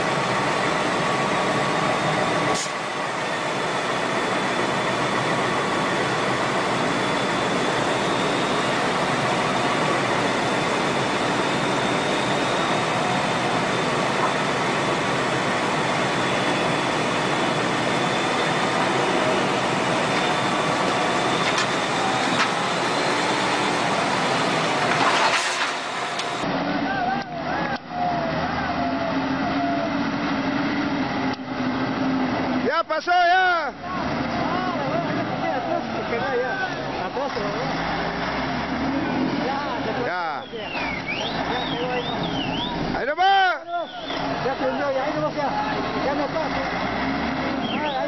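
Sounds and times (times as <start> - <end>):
diesel engine droning: 0.0 - 48.0
faint high whine: 2.0 - 26.4.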